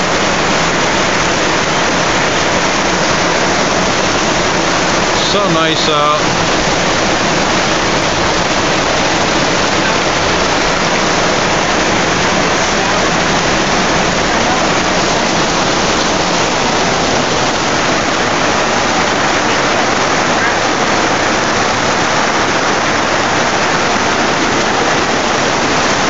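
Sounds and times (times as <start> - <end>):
heavy rain pouring: 0.0 - 26.0.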